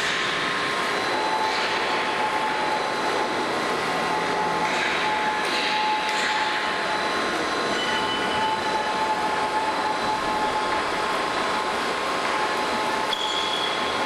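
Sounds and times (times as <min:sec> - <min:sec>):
plate rolling machine whining: 0:00.0 - 0:14.0
brief high squeals: 0:13.1 - 0:13.9.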